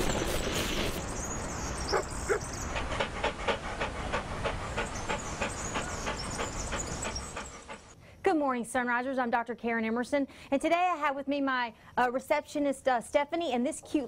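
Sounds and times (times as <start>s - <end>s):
dog panting: 1.8s - 8.0s.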